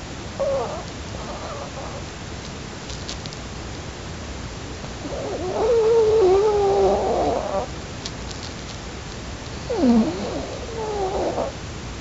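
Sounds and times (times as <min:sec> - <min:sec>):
dog snoring: 0:00.4 - 0:02.0, 0:05.0 - 0:07.7, 0:09.6 - 0:11.6.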